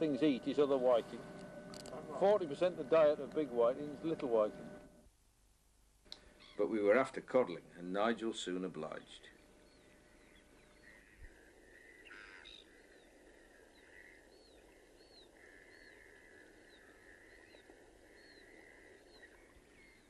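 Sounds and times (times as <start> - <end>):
steady low hiss: 0.0 - 20.0
bird chirping: 8.8 - 20.0.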